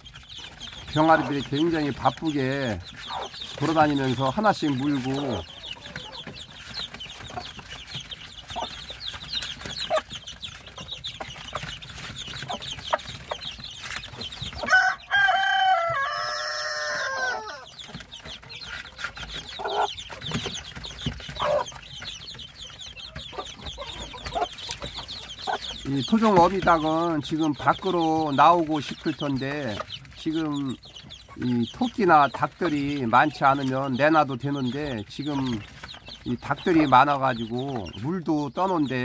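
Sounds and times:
chicks peeping: 0.0s - 39.0s
rooster crowing: 14.7s - 17.7s.

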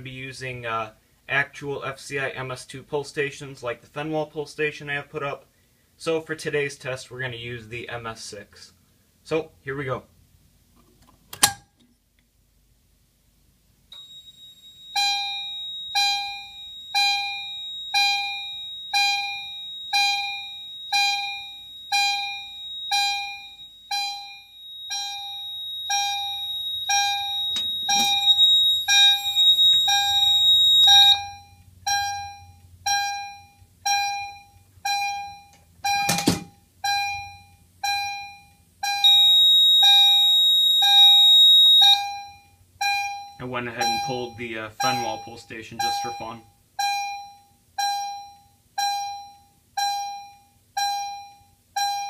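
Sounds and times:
high-pitched piezo tone: 14.0s - 36.2s, 36.9s - 50.2s
fire alarm chime ringing: 14.0s - 52.0s.

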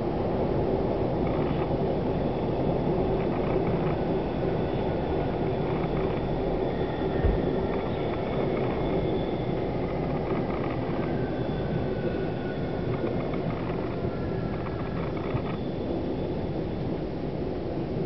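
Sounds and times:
faint whining tones: 0.3s - 18.0s
train wheels rumbling: 1.3s - 15.7s
low bump: 7.2s - 7.7s.

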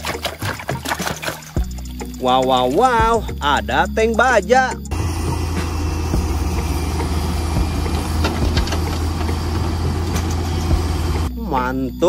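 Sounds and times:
vehicle engine idling: 4.9s - 11.3s.

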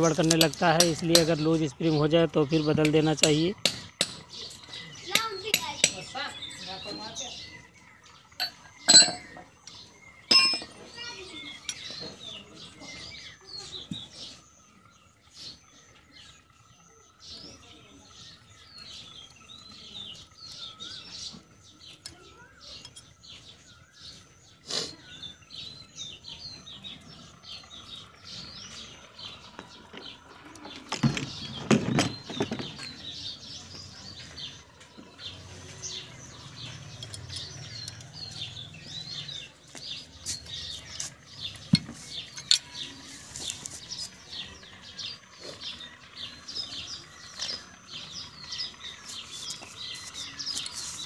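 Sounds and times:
small birds chirping: 0.0s - 51.0s
metal clinks and knocks: 8.4s - 9.5s, 10.3s - 11.1s, 29.8s - 33.0s.

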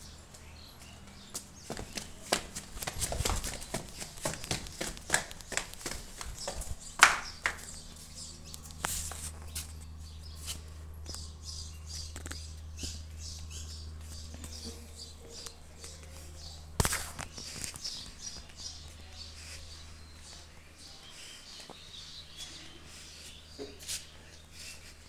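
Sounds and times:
steady low rumble: 0.0s - 21.0s
footsteps: 0.3s - 11.3s.

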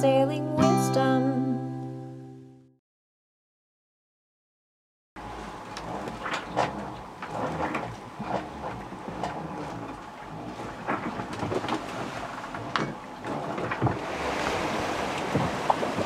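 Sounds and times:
boat hull creaks and knocks: 5.5s - 16.0s
rush of wind and sea: 10.6s - 16.0s.

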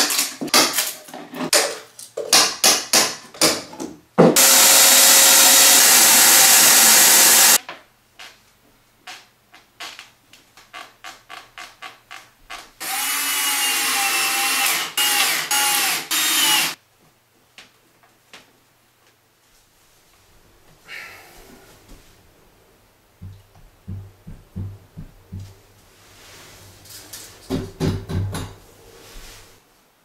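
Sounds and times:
cordless drill running: 4.4s - 7.6s, 12.8s - 16.8s
shop vacuum running: 4.4s - 7.6s.

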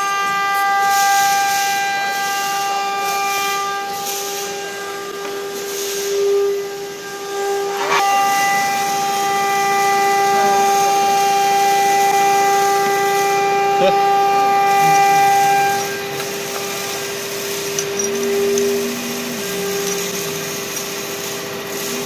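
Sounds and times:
motor drive whining: 6.5s - 22.0s.

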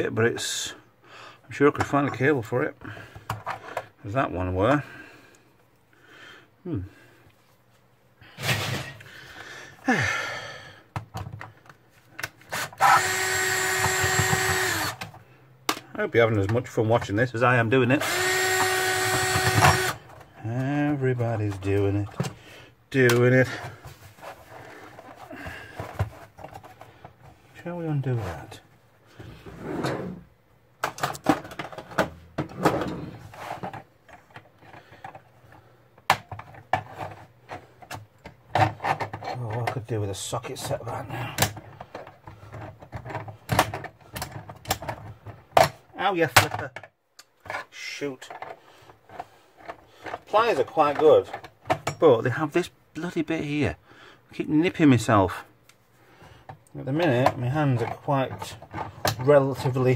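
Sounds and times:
screwdriver handling knocks and clicks: 10.9s - 15.9s
screwdriver motor running: 12.5s - 15.0s, 18.0s - 20.0s
scrapes and clicks of handling: 23.0s - 29.5s, 30.8s - 52.1s, 56.4s - 59.9s.

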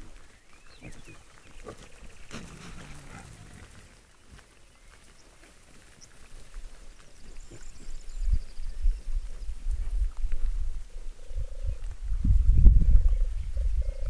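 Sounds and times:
wild boars grunting: 0.8s - 4.0s
rustling: 0.9s - 4.4s.

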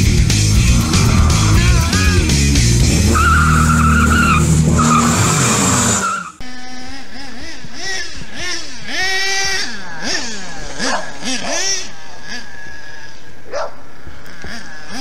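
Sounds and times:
engine at high revs: 0.0s - 15.0s
small rc truck engine revving: 0.5s - 15.0s
tyre squeal: 3.0s - 6.4s.

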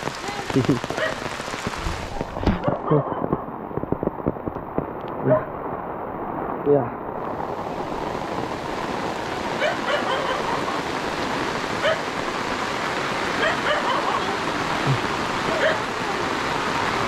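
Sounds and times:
heavy rain: 0.0s - 17.0s
dog barking: 1.0s - 1.3s, 5.2s - 5.5s, 9.6s - 10.7s, 11.8s - 12.1s, 13.4s - 14.2s, 15.5s - 16.0s.

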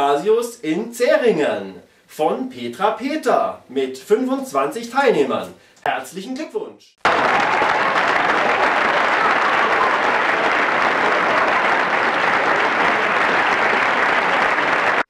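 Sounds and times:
applause: 7.0s - 15.0s.

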